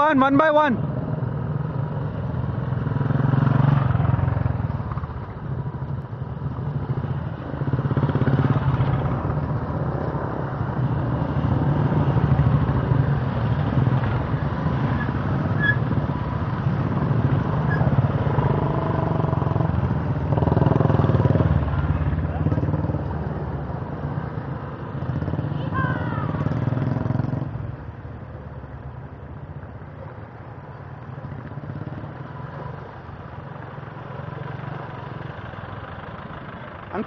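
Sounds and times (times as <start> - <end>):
motorcycle engines running: 0.0 - 37.0.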